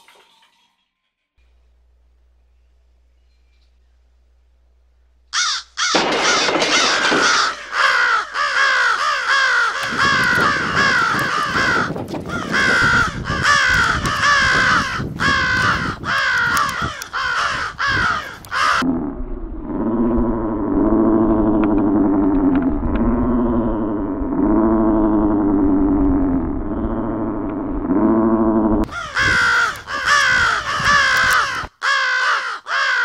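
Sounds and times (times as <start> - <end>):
flock of birds cawing: 5.3 - 18.9, 28.8 - 33.0.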